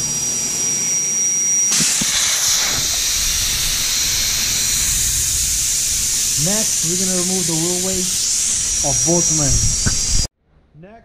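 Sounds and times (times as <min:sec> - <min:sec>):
air hissing from tire valve: 0:01.7 - 0:10.3.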